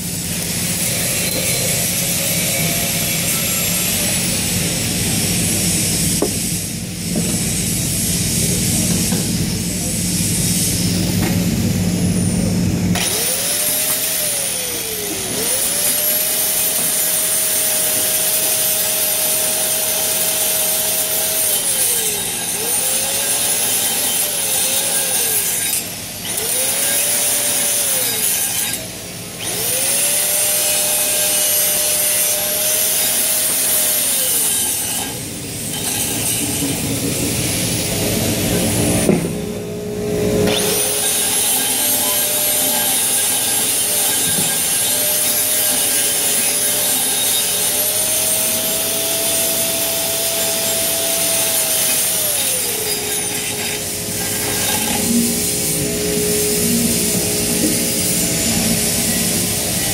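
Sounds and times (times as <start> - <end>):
angle grinder grinding steel: 0.0 - 9.9, 12.9 - 39.2, 40.2 - 59.9.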